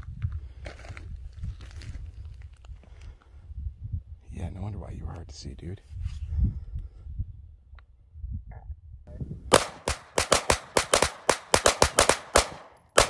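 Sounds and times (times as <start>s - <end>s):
rapid gunfire: 9.5s - 13.0s.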